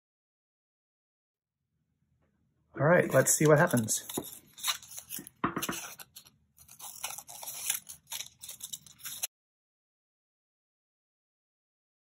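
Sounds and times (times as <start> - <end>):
paper rustling: 3.0 - 9.3
scissors snipping paper: 3.0 - 9.3.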